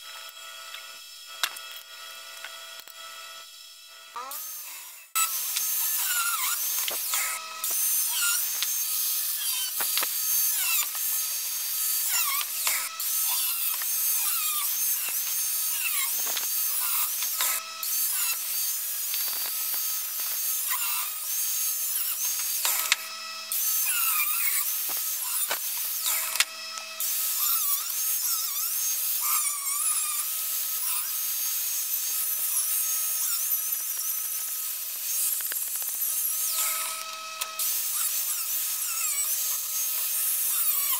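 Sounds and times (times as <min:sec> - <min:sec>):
angle grinder cutting metal: 0:00.0 - 0:40.9.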